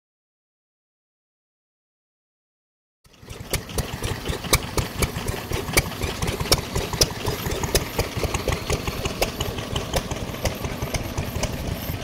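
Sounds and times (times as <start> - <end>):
stationary engine running slowly: 3.1 - 12.0.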